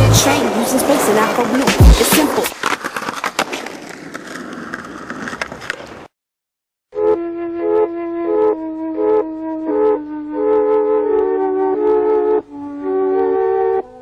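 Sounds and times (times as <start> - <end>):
skateboard wheels rolling on paving: 0.0 - 6.1
skateboard clicks: 1.5 - 6.1
woodwind melody: 7.0 - 14.0.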